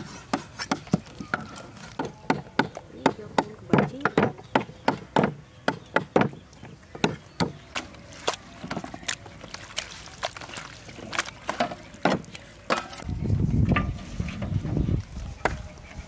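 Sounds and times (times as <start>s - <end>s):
cleavers chopping on wooden blocks: 0.0s - 9.2s, 11.1s - 13.0s.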